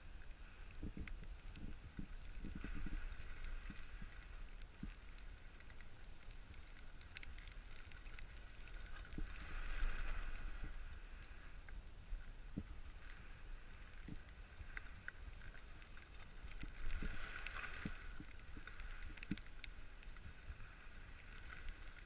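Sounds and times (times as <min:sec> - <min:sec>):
skis swishing through snow: 0:01.7 - 0:05.5, 0:08.2 - 0:11.6, 0:12.8 - 0:22.0.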